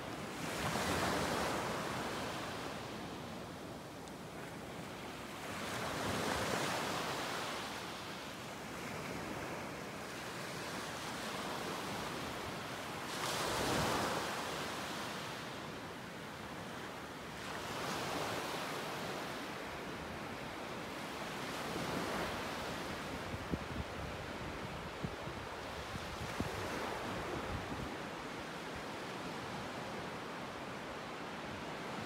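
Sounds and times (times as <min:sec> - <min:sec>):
small waves washing up beach: 0:04.4 - 0:23.4.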